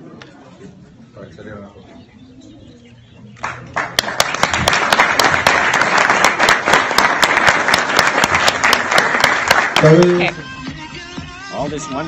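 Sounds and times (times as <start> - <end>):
audience applauding: 3.4 - 10.3.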